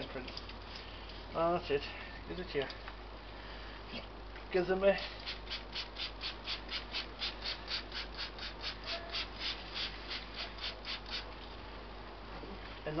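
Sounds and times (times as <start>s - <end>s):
spray bottle hissing sprays: 5.1s - 11.3s.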